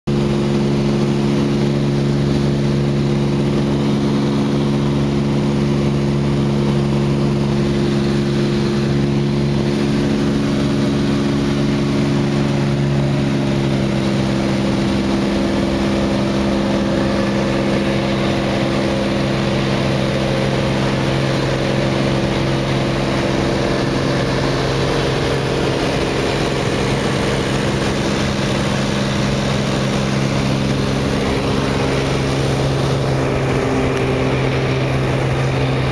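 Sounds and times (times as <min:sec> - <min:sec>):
propeller aircraft engine drone: 0:00.1 - 0:35.9.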